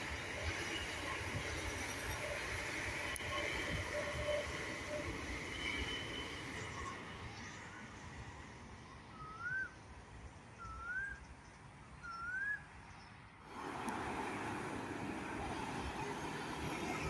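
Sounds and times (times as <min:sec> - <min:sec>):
train: 0:00.0 - 0:17.0
bird whistled calls: 0:09.1 - 0:09.8, 0:10.6 - 0:11.3, 0:12.0 - 0:12.7
passing vehicles: 0:12.2 - 0:17.0.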